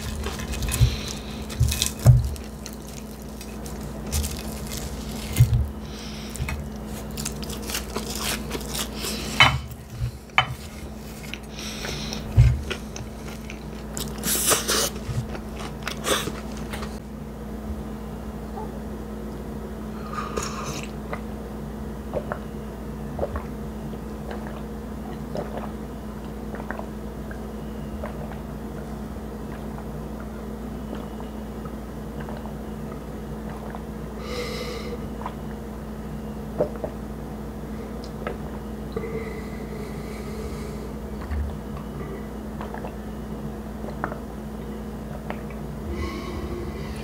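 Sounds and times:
chewing food: 0.0 - 17.0
steady low hum: 0.0 - 47.0.

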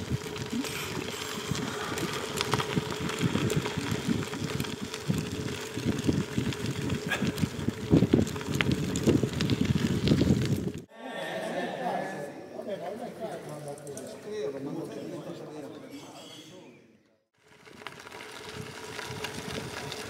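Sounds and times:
small ticks and crunches: 0.0 - 10.9, 17.4 - 20.0
tyres rolling over gravel: 0.0 - 10.9, 17.4 - 20.0
wind buffeting microphone: 0.0 - 10.9, 18.4 - 20.0.

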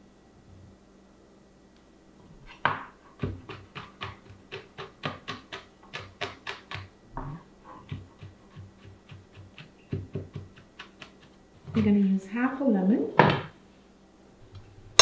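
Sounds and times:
knife chopping on cutting board: 2.6 - 6.9, 7.8 - 11.3.

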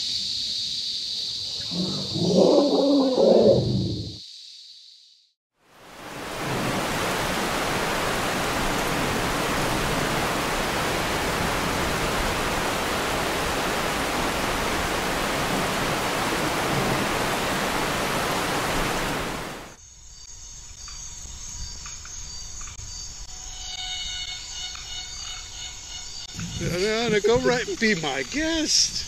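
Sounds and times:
insects trilling: 0.0 - 5.3, 19.8 - 29.0
heavy rain on foliage: 5.6 - 19.8.

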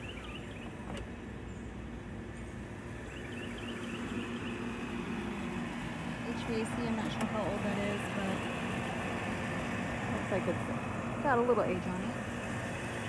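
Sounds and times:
birds chirping: 0.0 - 9.5.

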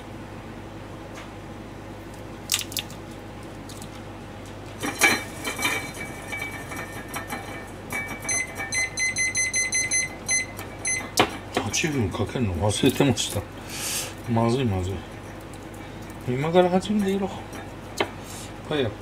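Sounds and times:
kitchen timer beeping: 8.2 - 11.1.

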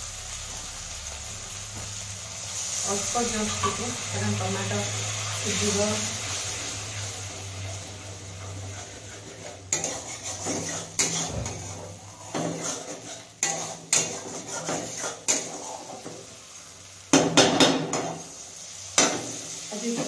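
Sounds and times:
faint sizzling: 0.0 - 20.0
spatula clacking on metal pan: 9.7 - 11.6, 12.3 - 16.1, 17.1 - 18.2, 19.0 - 19.4.

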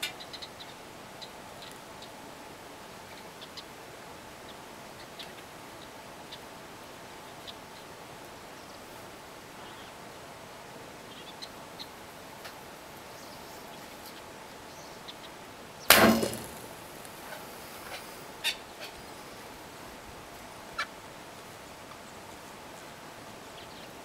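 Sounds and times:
bow string thump: 15.9 - 16.8.

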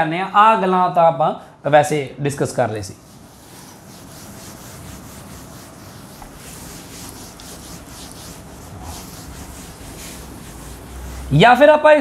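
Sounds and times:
duster rubbing on chalkboard: 2.9 - 11.7.

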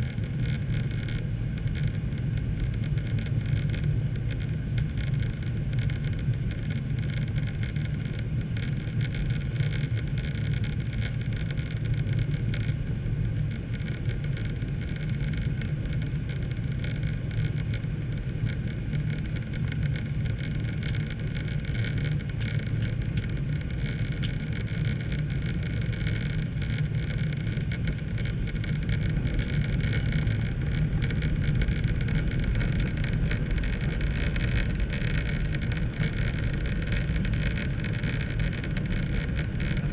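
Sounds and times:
jet engine drone in cabin: 0.0 - 39.9.

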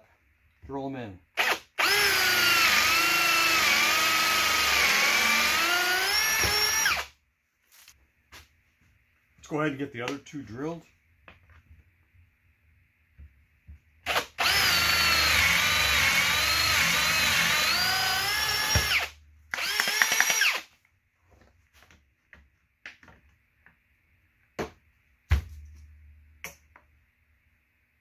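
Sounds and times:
cordless drill boring into wood: 1.4 - 7.1, 14.1 - 20.7.

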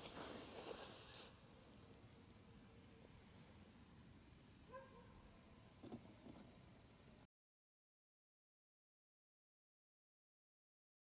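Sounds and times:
faint rustle: 0.0 - 1.8.

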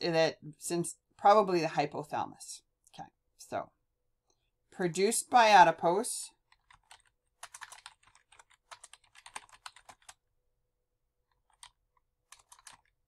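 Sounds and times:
typing on computer keyboard: 6.4 - 10.2, 11.3 - 13.0.

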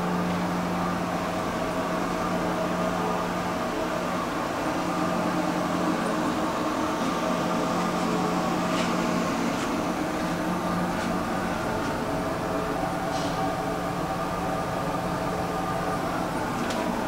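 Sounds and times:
machinery and ventilation hum: 0.0 - 17.0.

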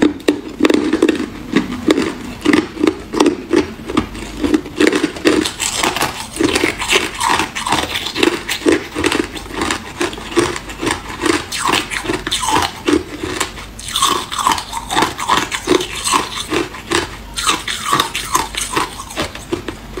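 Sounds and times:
person chewing ice: 0.0 - 20.0.

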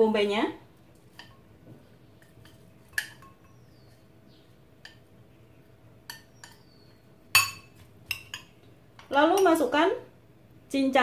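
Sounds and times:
chopsticks tapping on a plate: 1.1 - 4.0, 4.8 - 5.1, 6.0 - 6.7.

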